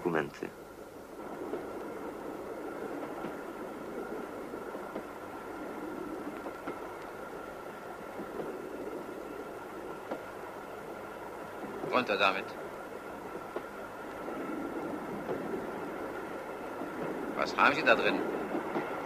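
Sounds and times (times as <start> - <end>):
faint whine: 0.0 - 19.0
railway carriage rumble: 0.0 - 19.0
faint ticks: 6.2 - 7.2.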